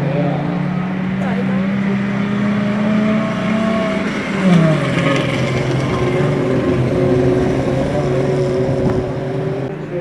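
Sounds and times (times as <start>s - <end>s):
truck engines racing under load: 0.0s - 10.0s.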